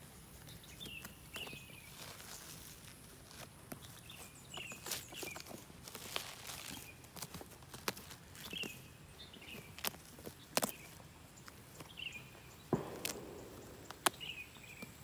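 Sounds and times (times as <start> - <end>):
wood crackling crunch: 0.0 - 15.0
rotten wood snapping and splintering: 9.7 - 11.0
bird falling chirp: 11.8 - 15.0.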